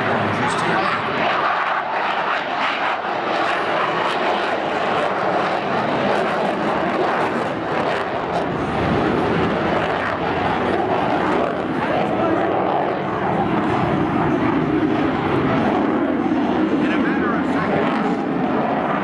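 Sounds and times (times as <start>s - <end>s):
fighter jet flying by: 0.0s - 19.0s.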